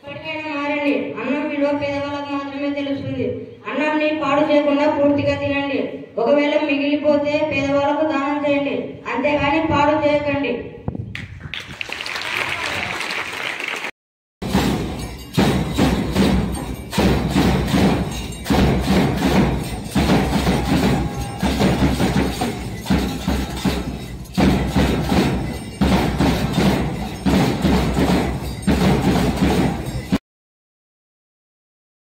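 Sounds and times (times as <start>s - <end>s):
percussion band marching beat: 14.4s - 30.2s.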